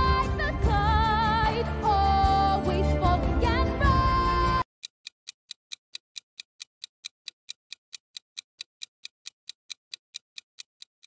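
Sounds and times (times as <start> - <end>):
quick clock-like ticks: 4.8 - 11.0.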